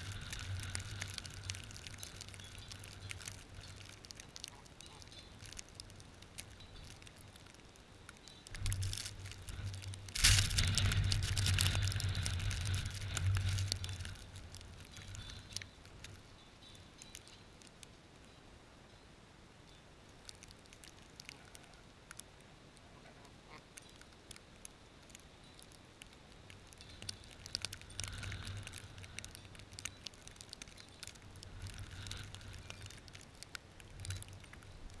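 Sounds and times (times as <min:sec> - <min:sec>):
light ticks and crackles: 0:00.0 - 0:35.0
wind gusting on microphone: 0:08.6 - 0:16.2.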